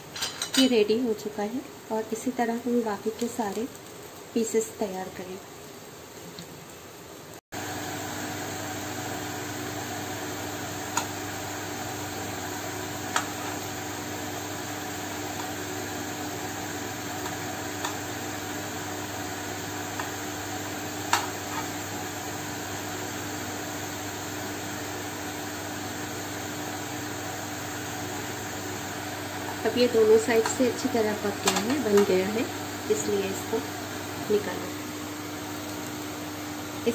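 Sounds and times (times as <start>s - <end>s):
batter sizzling in hot oil: 0.9s - 36.9s.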